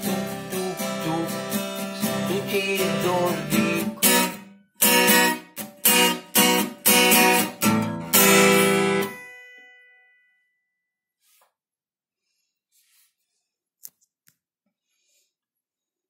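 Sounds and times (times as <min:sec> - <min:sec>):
acoustic guitar strumming: 0:00.0 - 0:09.6.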